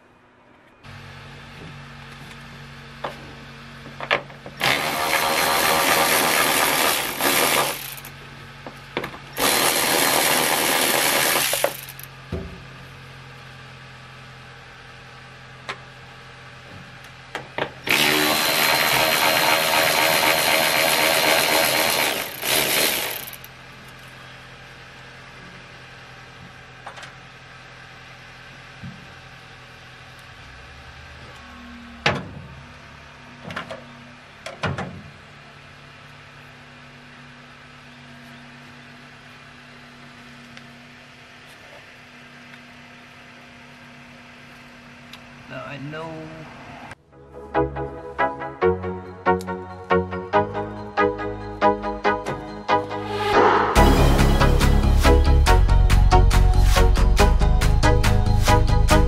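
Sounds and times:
handheld power tool running: 4.5 - 8.2, 9.2 - 12.1, 17.8 - 23.6.

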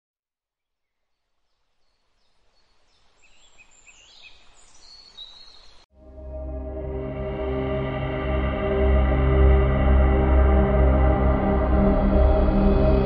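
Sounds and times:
bird chirps: 0.8 - 5.8
ambient music with held tones: 5.9 - 13.0.

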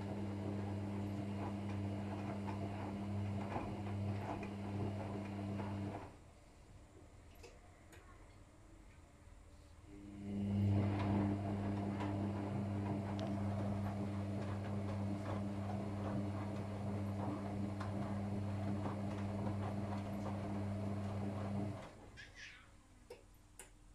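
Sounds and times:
washing machine motor hum: 0.0 - 6.3, 9.9 - 22.2.

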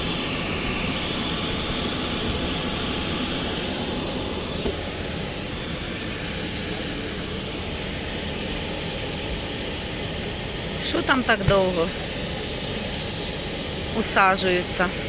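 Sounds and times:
jet engine rushing and whining: 0.0 - 15.0.

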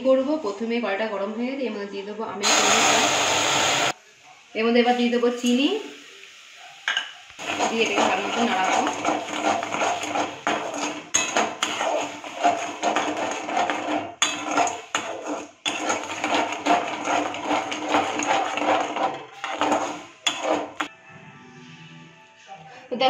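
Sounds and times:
spatula scraping steel pan: 7.4 - 20.9.

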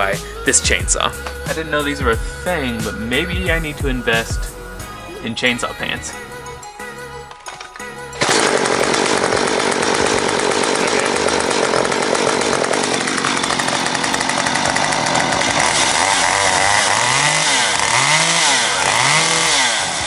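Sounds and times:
chainsaw pull-started: 7.2 - 20.0
chainsaw running: 7.2 - 20.0
chainsaw revving: 8.1 - 20.0.

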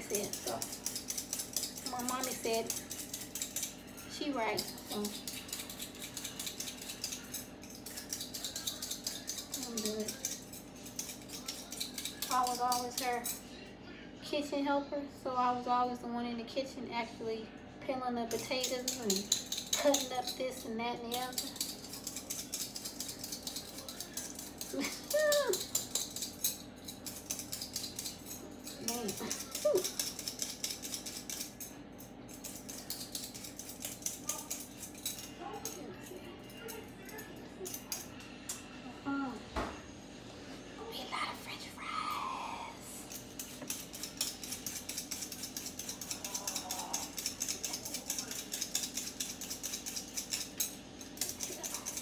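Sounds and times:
peeler scraping potato skin: 0.0 - 13.4, 18.3 - 31.7, 32.3 - 35.8, 43.0 - 52.0
dog whining: 24.7 - 25.7.

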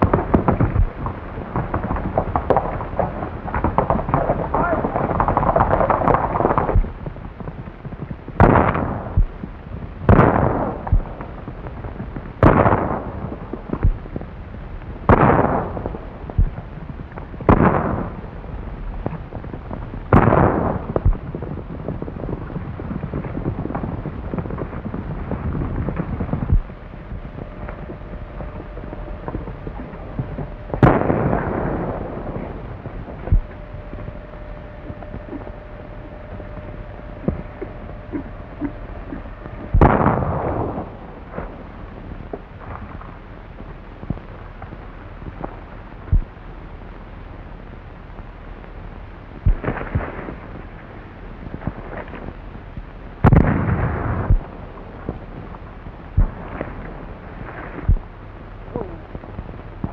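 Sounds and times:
echoing gunshots: 0.0 - 9.4, 10.0 - 11.4, 12.4 - 14.0, 15.1 - 16.7, 17.4 - 19.2, 20.1 - 41.8
steady hiss: 0.0 - 59.9.

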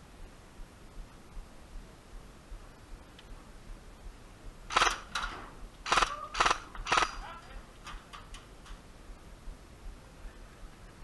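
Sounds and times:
airsoft gun automatic bursts: 4.7 - 7.4.

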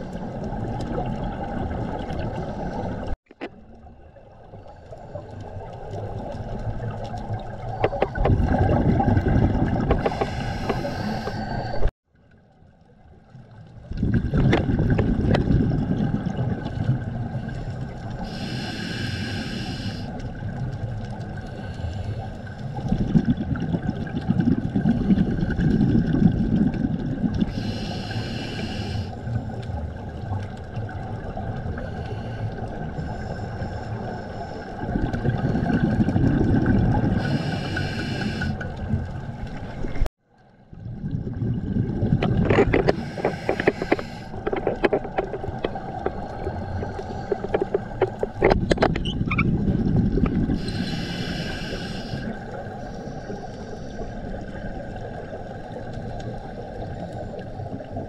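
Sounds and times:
gurgling exhaled bubbles: 0.0 - 3.2, 3.8 - 11.9, 13.8 - 19.4, 20.1 - 58.0
regulator hissing inhalations: 10.0 - 11.9, 18.2 - 20.1, 27.5 - 29.2, 37.2 - 38.6, 42.9 - 44.4, 50.6 - 54.0.

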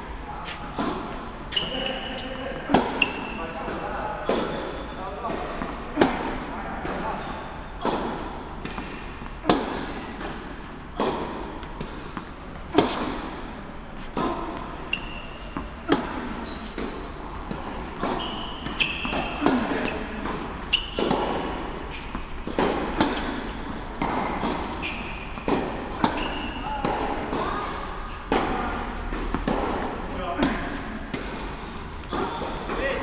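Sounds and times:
racket hitting tennis ball: 0.5 - 4.7, 5.3 - 7.2, 7.8 - 33.0
ball bouncing on hard court: 0.7 - 33.0
shoe squeaks: 1.3 - 5.9, 7.0 - 8.0, 14.0 - 29.4, 31.5 - 33.0.

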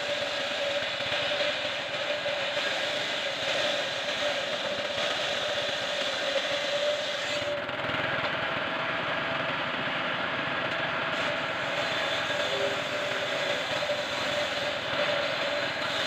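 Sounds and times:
table saw ripping wood: 0.0 - 7.6, 11.1 - 16.0.

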